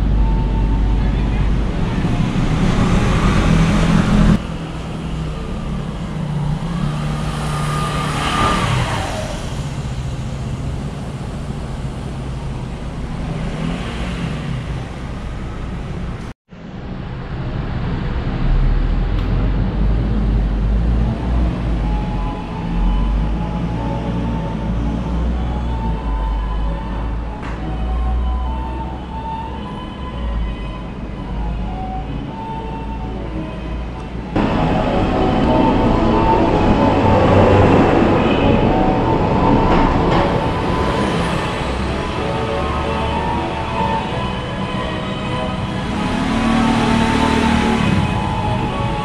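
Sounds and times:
heavy low rumble: 0.0 - 7.4, 14.6 - 27.4, 33.2 - 49.0
dense background noise: 0.0 - 49.0.

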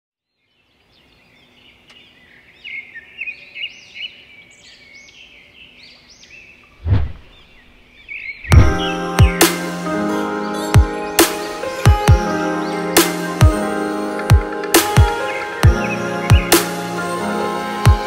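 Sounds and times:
birds singing: 0.2 - 18.0
deep thump: 6.8 - 7.4, 8.5 - 9.0
loud hit: 8.5 - 9.0.

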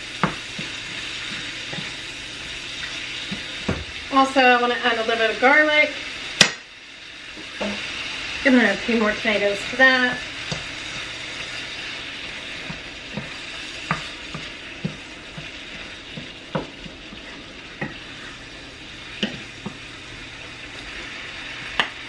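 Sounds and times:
food sizzling in a frying pan: 0.0 - 22.0
wooden spoon knocking pan: 12.6 - 17.2.

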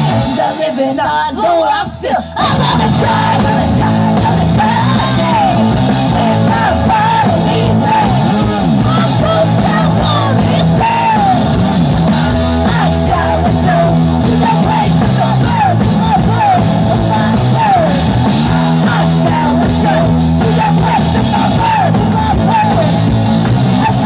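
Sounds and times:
drum kit playing: 0.0 - 1.4, 2.4 - 24.0
electric guitar: 0.0 - 24.0
woman singing and yelling: 0.3 - 11.4.

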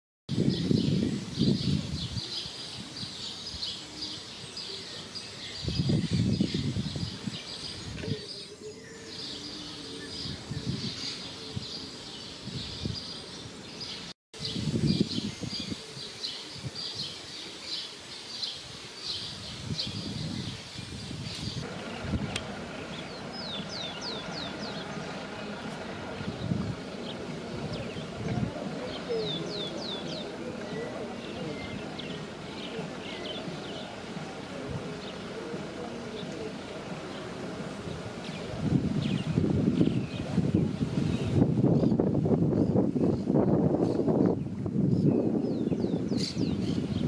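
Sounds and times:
small birds chirping: 0.4 - 47.0
low rumbles: 21.4 - 43.6.

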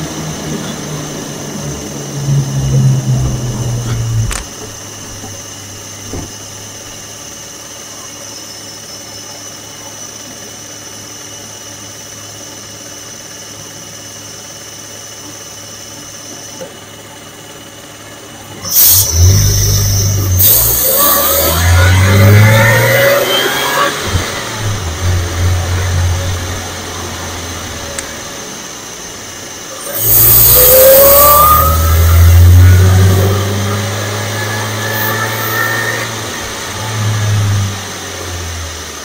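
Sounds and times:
car engine revving: 0.0 - 7.3, 18.5 - 39.0.

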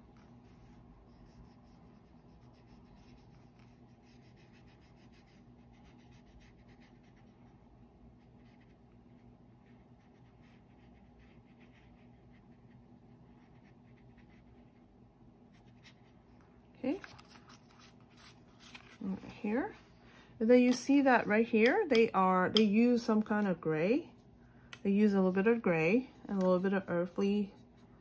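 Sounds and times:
brush scratching across paper: 0.0 - 7.6, 8.2 - 14.8, 16.9 - 19.7, 25.1 - 28.0
low steady hum: 0.0 - 28.0.

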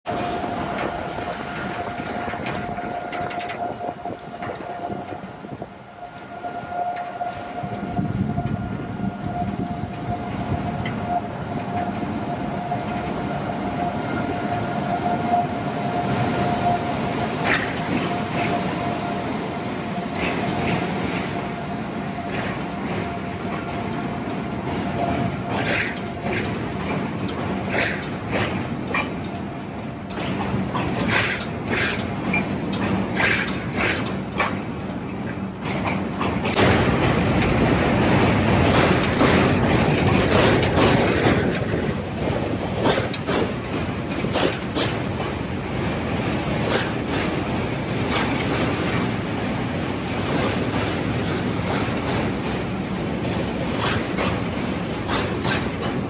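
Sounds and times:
low train rumble: 0.0 - 56.0
wheels clacking over rail joints: 0.1 - 5.7, 20.0 - 56.0.

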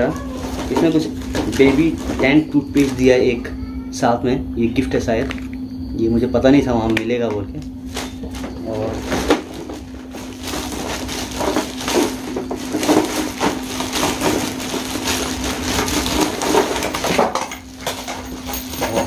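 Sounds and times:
plastic wrapping crinkling: 0.0 - 3.3, 7.8 - 19.0.

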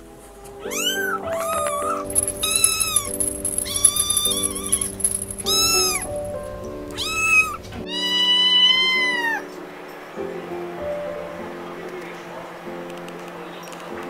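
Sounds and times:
background music with held notes: 0.0 - 14.0
kitten mewing: 0.6 - 6.1, 6.9 - 9.4.

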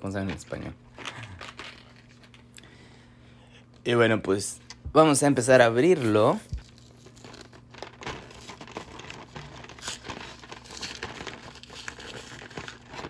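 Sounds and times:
packaging crinkling and crackling: 0.0 - 2.5, 6.2 - 13.0
packaging tearing: 6.5 - 13.0.

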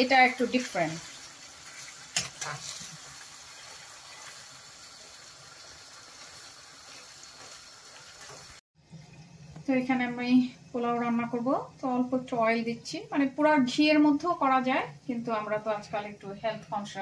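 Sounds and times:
chicken sizzling in a frying pan: 0.0 - 8.6
spatula stirring in a pan: 0.5 - 4.6, 6.2 - 8.6.

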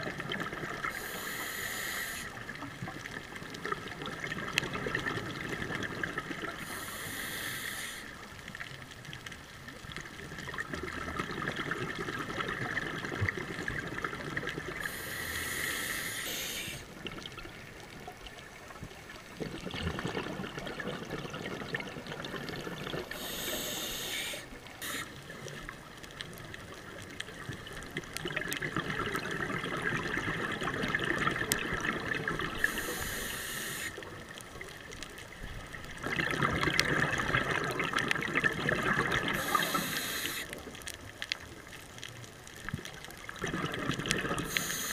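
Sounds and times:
diver breathing through regulator: 0.9 - 2.4, 6.6 - 8.1, 14.8 - 16.9, 23.0 - 25.2, 32.6 - 34.0, 39.4 - 40.6, 44.3 - 44.9
sharp hiss: 1.0 - 2.3, 6.7 - 8.1, 14.8 - 16.8, 23.1 - 25.2, 32.6 - 34.0, 39.4 - 40.5, 44.5 - 44.9
bubbling rush: 10.3 - 16.0, 16.7 - 24.1, 24.8 - 34.2, 35.6 - 40.5, 42.7 - 44.9.

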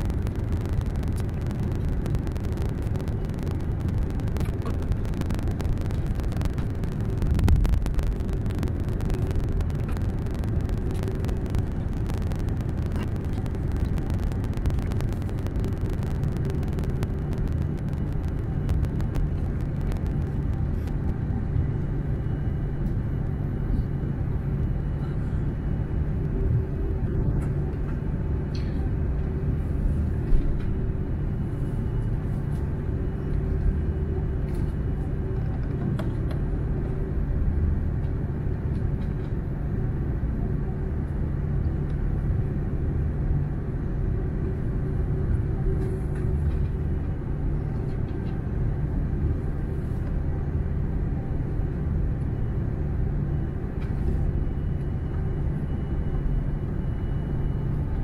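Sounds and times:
airplane cabin rumble: 0.0 - 58.0.

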